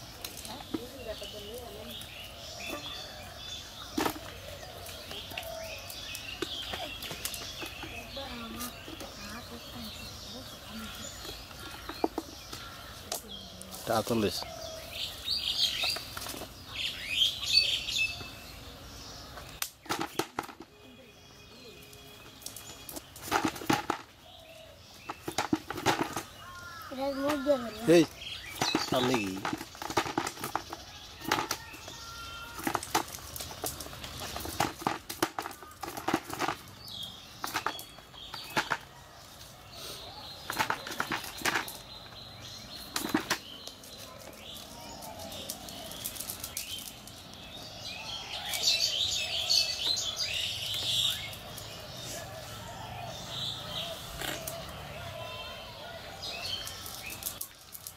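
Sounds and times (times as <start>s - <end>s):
small birds chirping: 0.0s - 57.9s.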